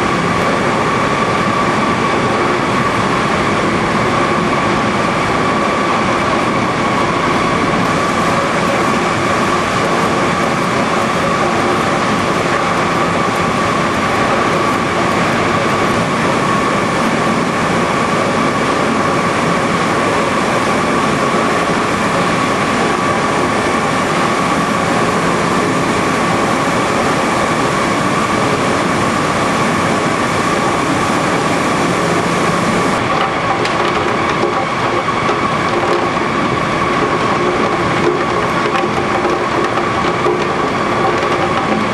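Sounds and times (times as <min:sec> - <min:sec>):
high machine whine: 0:00.0 - 0:41.9
machinery din: 0:31.0 - 0:41.9.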